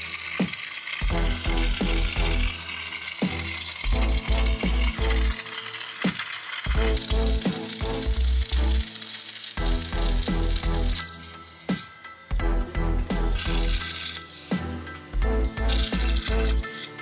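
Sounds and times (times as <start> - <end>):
plasma torch hissing: 0.0 - 17.0
background music with bass beat: 9.6 - 13.8, 14.6 - 16.6.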